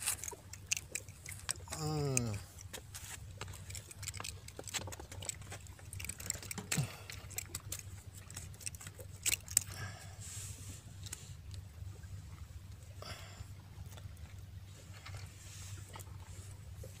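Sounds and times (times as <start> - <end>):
fish flapping and slapping on rock: 0.0 - 9.8.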